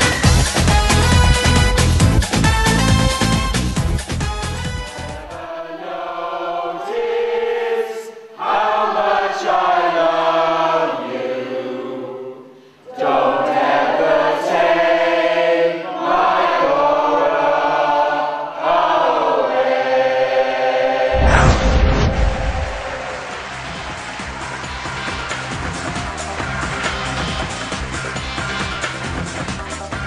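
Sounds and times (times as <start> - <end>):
mixed choir singing: 4.9 - 24.8.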